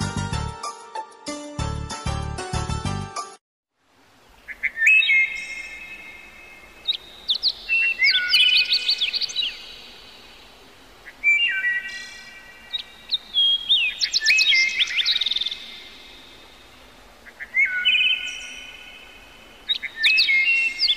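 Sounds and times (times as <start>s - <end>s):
bird chirping and whistling: 4.6s - 5.8s, 6.9s - 9.7s, 11.2s - 12.1s, 12.7s - 15.7s, 19.7s - 20.9s.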